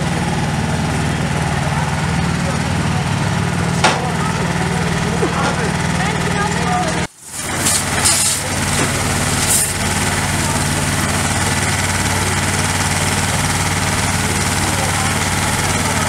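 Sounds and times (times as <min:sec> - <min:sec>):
fire truck engine running: 0:00.0 - 0:16.0
water spray hissing: 0:07.1 - 0:11.3.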